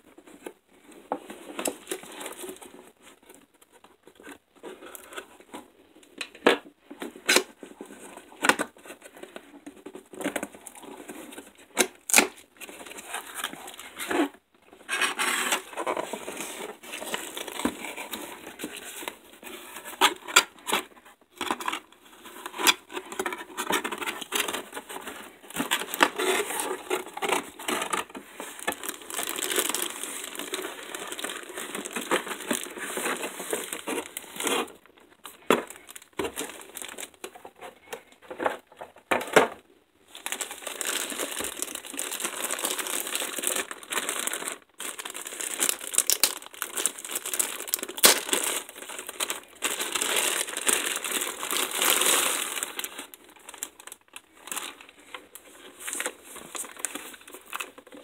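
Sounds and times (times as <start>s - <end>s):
cardboard packaging rustling: 0.1s - 6.0s, 7.0s - 58.0s
plastic wrapping crinkling: 9.9s - 20.8s, 22.4s - 38.0s, 40.1s - 58.0s.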